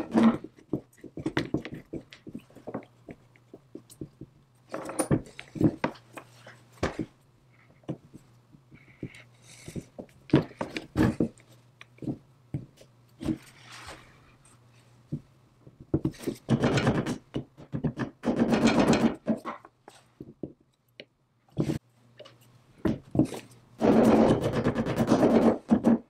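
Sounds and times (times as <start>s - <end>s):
metal parts clicking and knocking: 3.8s - 6.0s.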